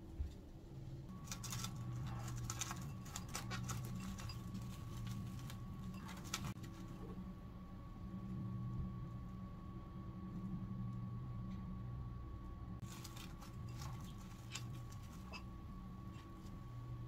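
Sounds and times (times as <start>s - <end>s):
cling film crinkling: 1.1s - 7.0s, 12.8s - 15.5s.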